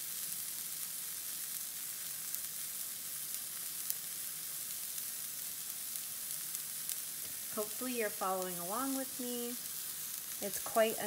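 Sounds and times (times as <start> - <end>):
vegetables sizzling in oil: 0.0 - 11.0
small oil pops: 6.9 - 7.4.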